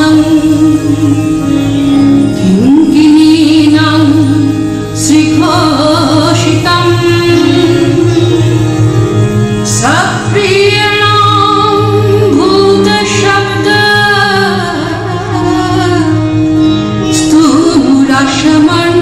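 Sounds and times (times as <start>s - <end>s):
woman singing: 0.0s - 8.7s, 9.6s - 19.0s
instrumental accompaniment: 0.0s - 19.0s.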